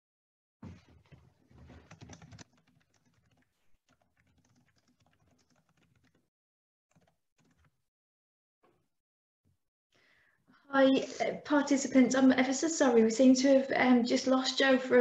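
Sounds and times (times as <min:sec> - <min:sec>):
faint keyboard typing: 0:01.6 - 0:06.3, 0:06.9 - 0:07.8.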